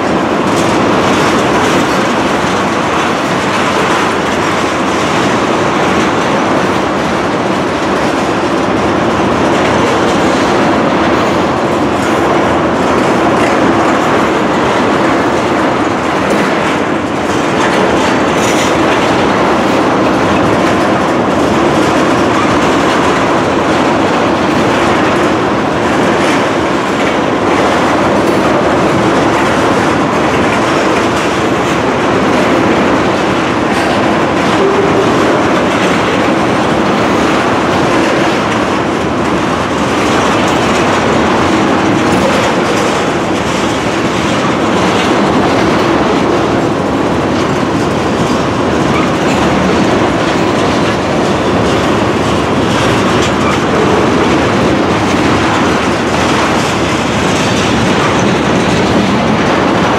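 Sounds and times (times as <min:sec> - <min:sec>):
freight train wheels rumbling on rails: 0:00.0 - 0:59.9.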